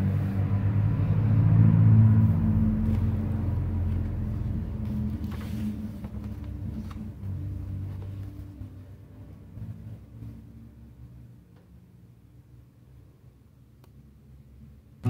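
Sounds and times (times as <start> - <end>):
low droning rumble: 0.0 - 11.3.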